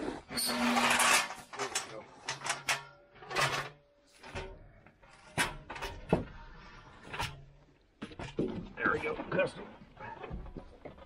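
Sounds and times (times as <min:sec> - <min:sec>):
knocks and clicks on wires and clamps: 0:00.9 - 0:06.4.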